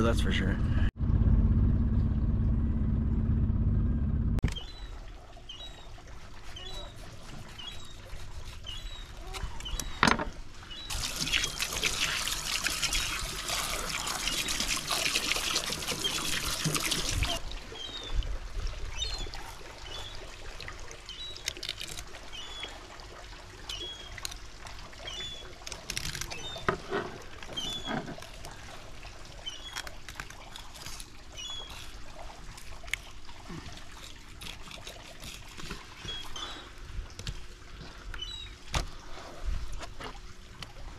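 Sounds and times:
hose water splashing on plastic: 10.9s - 17.5s.

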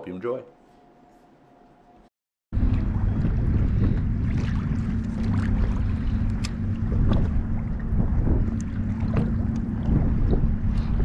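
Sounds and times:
waves lapping against kayak hull: 2.6s - 11.0s
wind buffeting microphone: 2.6s - 11.0s.

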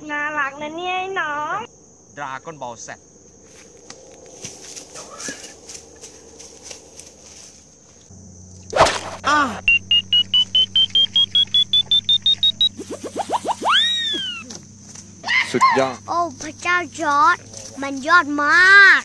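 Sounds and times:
rising chirps: 2.8s - 16.1s
quick beeps rising in pitch: 9.7s - 13.8s.

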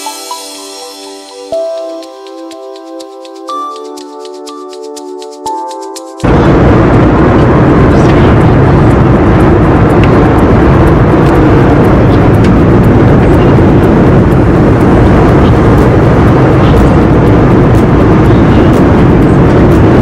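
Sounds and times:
airliner cabin engine rush: 5.0s - 20.0s.

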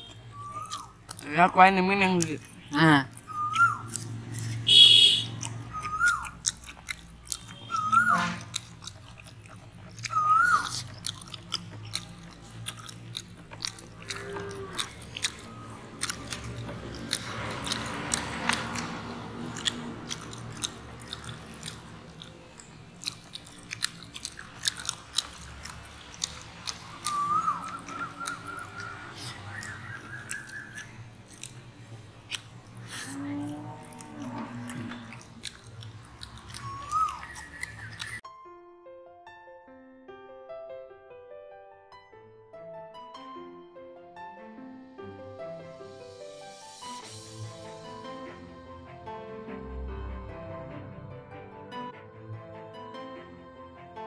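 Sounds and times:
people chewing and smacking: 0.0s - 38.2s
crunching: 5.2s - 38.2s
whistled note: 7.6s - 8.4s, 27.1s - 28.9s.

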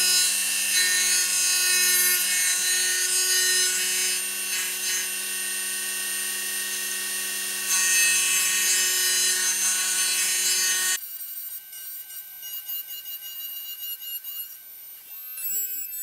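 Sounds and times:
rotary tool motor whine: 0.0s - 16.0s.

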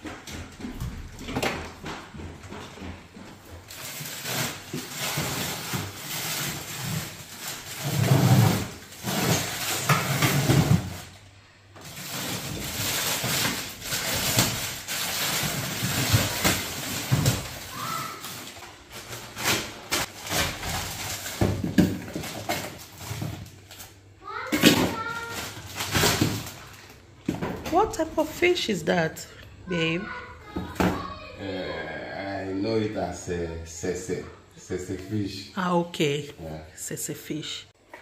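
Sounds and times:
plastic bags rustling and crinkling: 2.5s - 28.7s
plastic bag pulled open: 3.7s - 11.1s, 11.8s - 24.0s.

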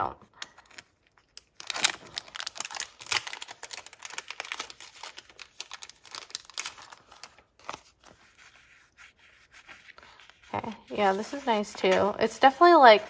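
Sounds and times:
plastic packaging crinkling: 0.4s - 8.4s.

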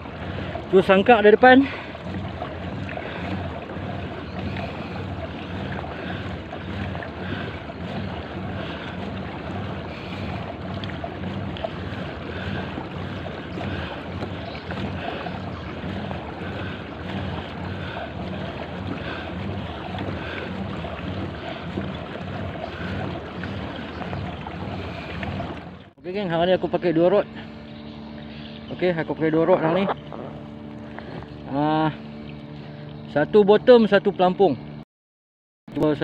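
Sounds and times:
wind buffeting microphone: 0.0s - 25.8s
water washing along kayak hull: 0.0s - 33.9s.

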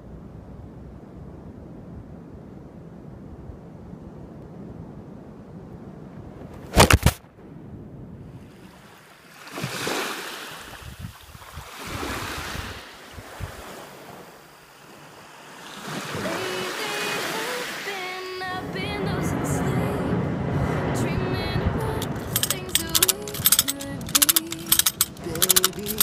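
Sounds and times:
wind rumbling on microphone: 0.0s - 9.0s, 10.6s - 14.3s, 18.6s - 24.2s
small waves on sandy beach: 8.3s - 22.4s.

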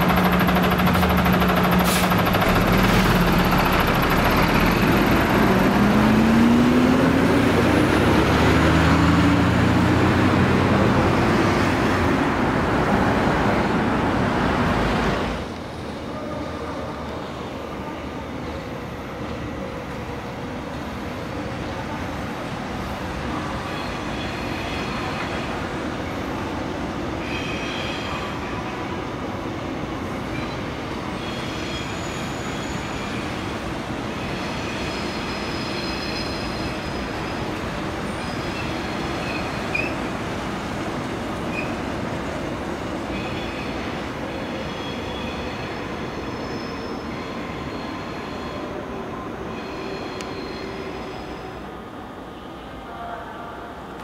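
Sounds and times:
train rumbling past: 0.0s - 54.0s
high wheel squeals: 30.4s - 33.5s, 34.2s - 40.1s, 41.5s - 41.8s, 49.4s - 51.6s.

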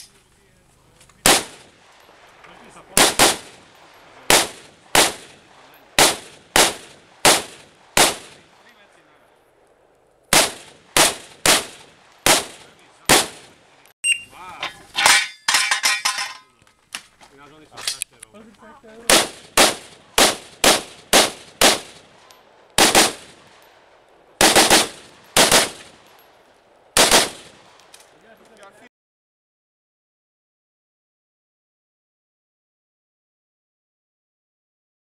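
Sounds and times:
rifle shots with echo: 1.2s - 13.9s, 19.0s - 28.5s.

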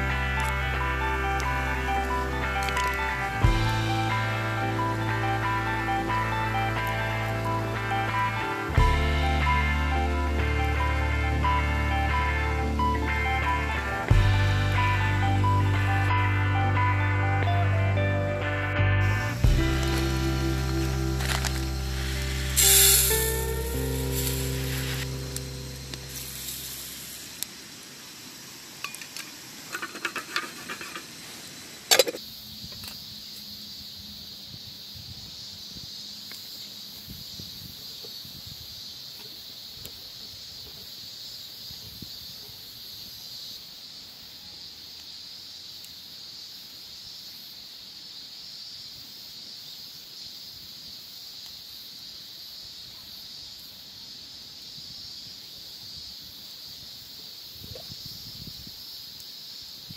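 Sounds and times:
high-pitched hiss: 0.0s - 59.9s
metal tin clinking: 28.8s - 31.1s.

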